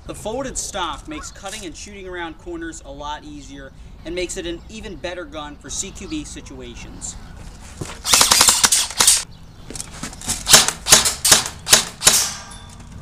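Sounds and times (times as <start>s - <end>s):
airsoft gun firing bursts: 8.0s - 9.2s, 10.5s - 12.4s.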